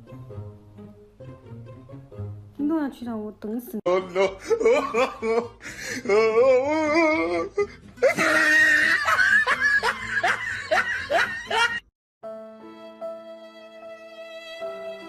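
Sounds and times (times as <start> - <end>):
person laughing: 3.9 - 11.8.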